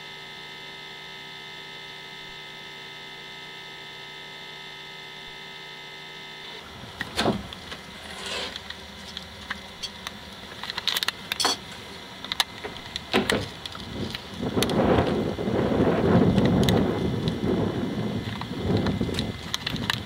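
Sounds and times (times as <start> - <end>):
electrical hum: 0.0 - 20.0.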